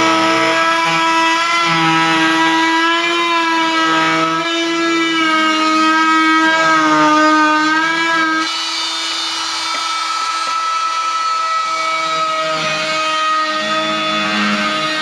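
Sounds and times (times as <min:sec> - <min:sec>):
oscillating multi-tool buzzing: 0:05.9 - 0:14.7.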